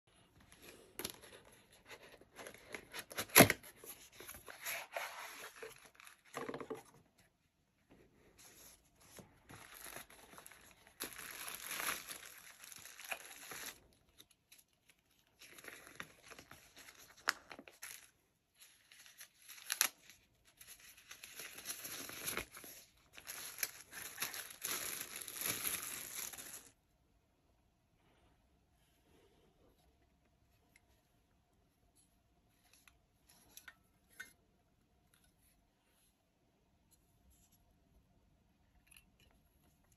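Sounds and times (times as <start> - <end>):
plastic bag crinkling: 9.5 - 14.0, 20.6 - 26.8.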